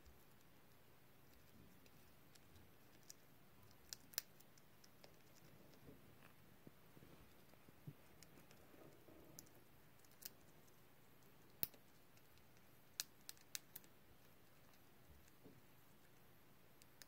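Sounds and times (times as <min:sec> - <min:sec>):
hamster cracking seed husk: 0:01.2 - 0:05.8, 0:11.5 - 0:15.4.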